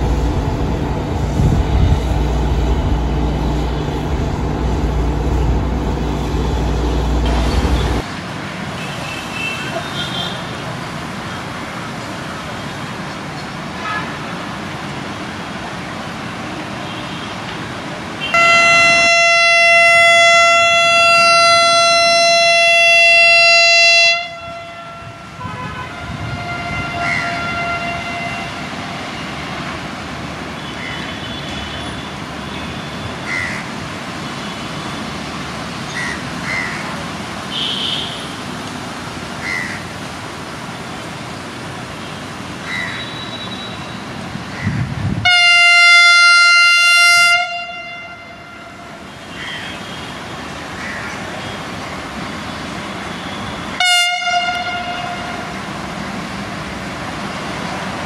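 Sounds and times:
train horn blast: 0.0s - 8.0s, 18.2s - 29.2s, 45.2s - 49.1s, 53.7s - 55.6s
railway station noise: 0.0s - 58.0s.

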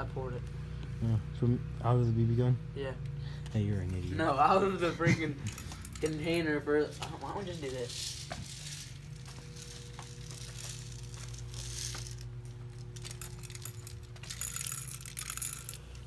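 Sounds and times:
steady low hum: 0.0s - 16.0s
bbs rattling into a gun: 5.4s - 6.2s, 7.5s - 16.0s.

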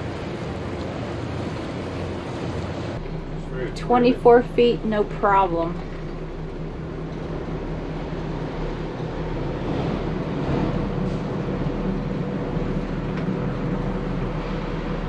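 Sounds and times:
boat engines droning: 0.0s - 15.0s
water noise: 0.0s - 15.0s
wind: 0.0s - 15.0s.

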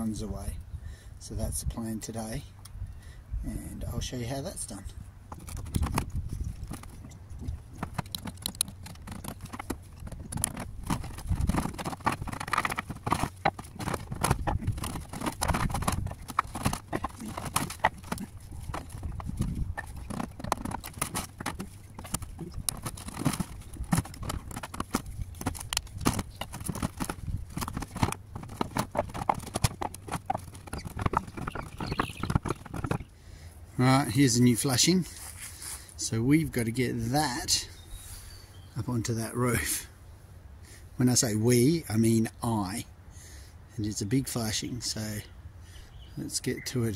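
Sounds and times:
clay roof tiles clunking: 5.3s - 33.1s.

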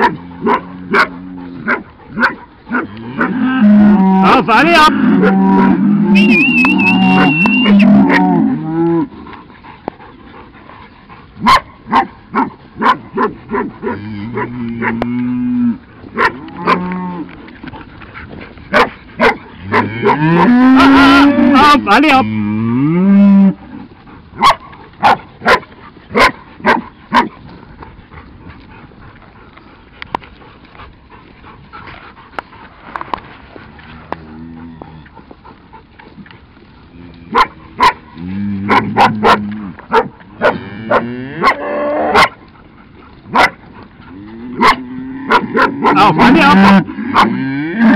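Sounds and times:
cattle mooing: 2.7s - 9.1s, 13.5s - 17.3s, 19.6s - 23.8s, 33.7s - 35.2s, 36.9s - 39.8s, 40.4s - 42.2s, 44.1s - 47.9s.

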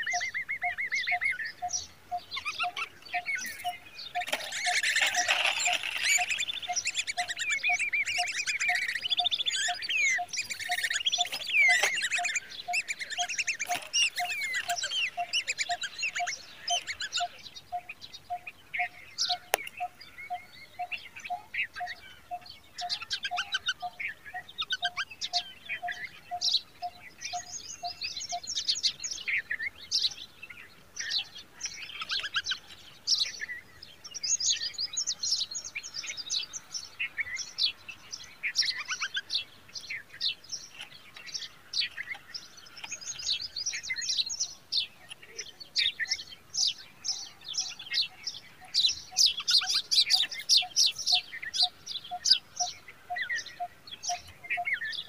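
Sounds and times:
nestlings cheeping: 1.6s - 17.2s.

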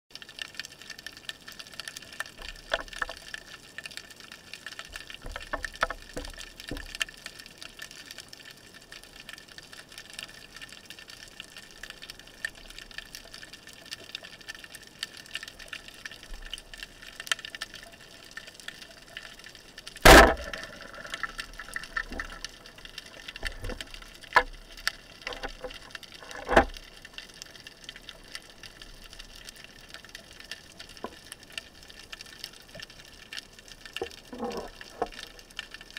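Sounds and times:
underwater crackling and hiss: 0.1s - 35.9s
small clicks: 0.2s - 35.9s
speargun firing crack: 20.0s - 20.8s
smaller sharp clicks: 20.0s - 22.5s.

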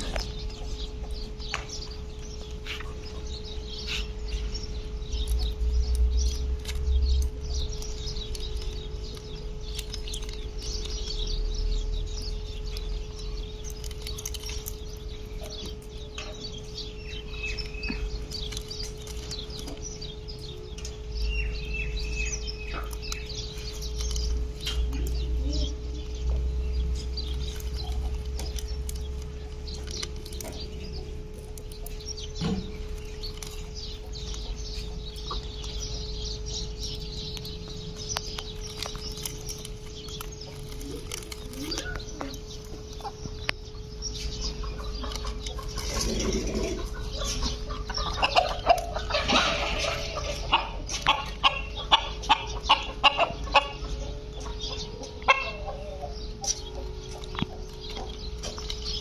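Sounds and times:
parakeets cracking corn: 0.0s - 53.9s, 56.3s - 59.0s
hen clucking: 39.9s - 59.0s.

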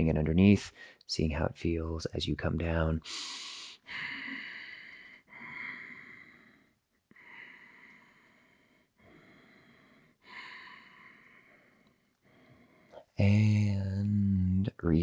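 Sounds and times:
man breathing slowly: 3.1s - 13.6s.

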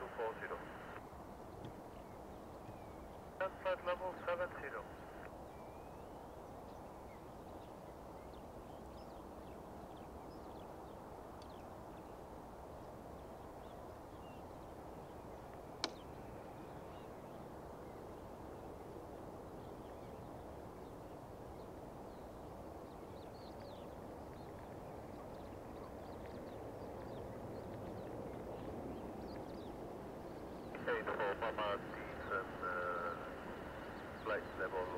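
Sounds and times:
jet engines rumbling: 0.0s - 1.0s, 3.3s - 5.3s, 30.0s - 34.9s
birds calling: 19.6s - 34.9s.

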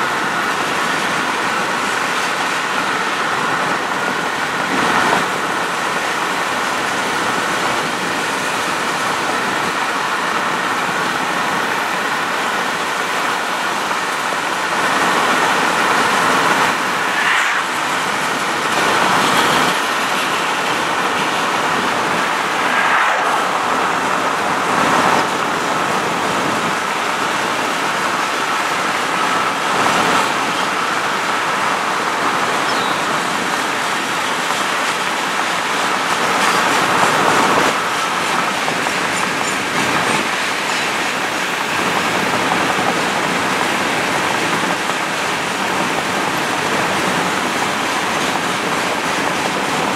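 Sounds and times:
car road and wind noise: 0.0s - 49.9s
freight train cars rolling: 31.3s - 49.9s.

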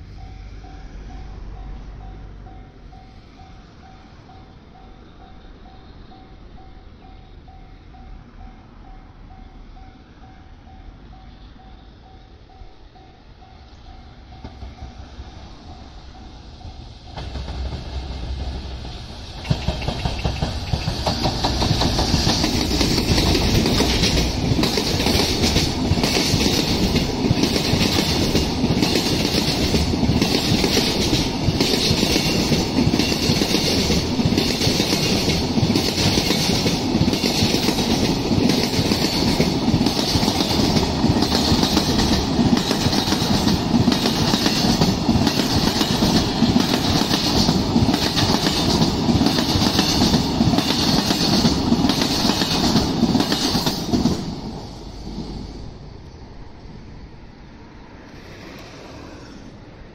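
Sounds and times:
freight train wheels clacking: 12.1s - 55.4s.

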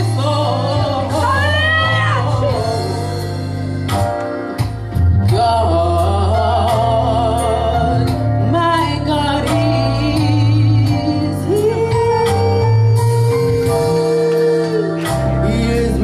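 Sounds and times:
bass guitar: 0.0s - 16.0s
choir singing gospel: 0.0s - 16.0s
drums: 0.0s - 16.0s.

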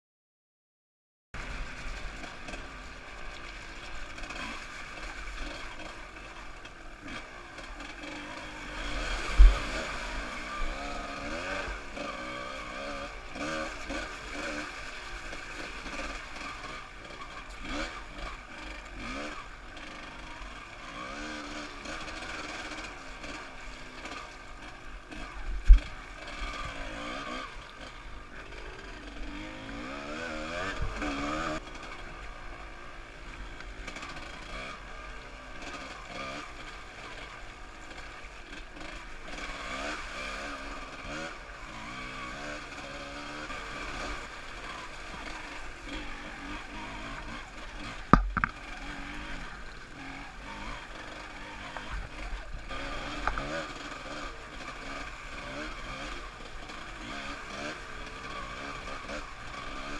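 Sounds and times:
motorcycle engine revving: 1.4s - 59.9s
sharp thumps: 48.1s - 48.7s.

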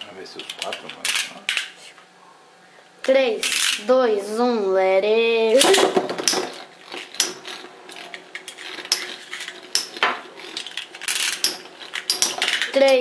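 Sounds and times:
metallic clinks and clacks: 10.6s - 12.8s.

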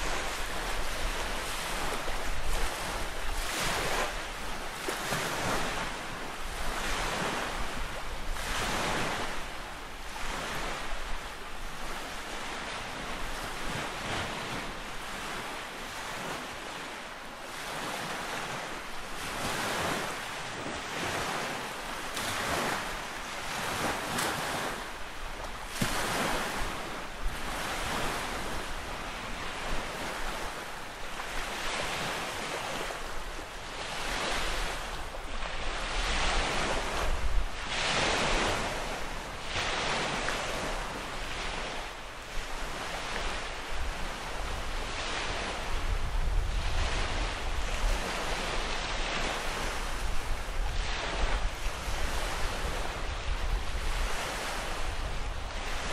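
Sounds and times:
lake waves washing onto shore: 0.0s - 55.9s
wind rumble on microphone: 0.0s - 55.9s.

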